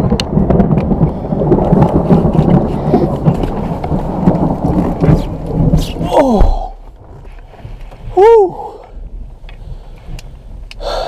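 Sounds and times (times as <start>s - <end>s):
loud thunder: 0.0s - 7.3s
heavy rain: 0.0s - 11.0s.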